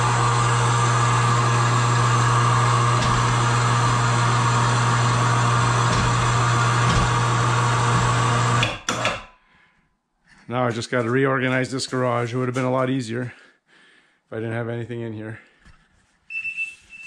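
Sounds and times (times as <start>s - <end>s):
electric winch motor hum: 0.0s - 9.2s.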